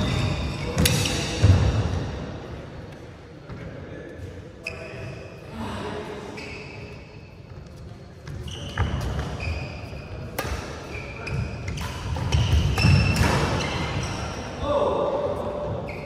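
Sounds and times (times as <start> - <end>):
shoes squeaking on court: 0.0 - 1.5, 4.2 - 5.2, 6.3 - 14.4, 15.7 - 16.0
racket hitting shuttlecock: 0.7 - 1.6, 10.3 - 14.0.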